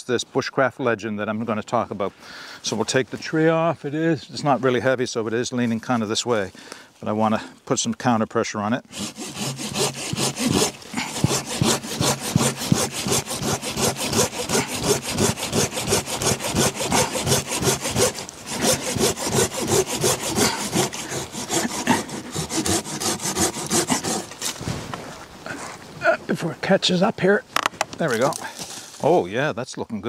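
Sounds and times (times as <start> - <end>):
saw rasping through wood: 8.9 - 24.5.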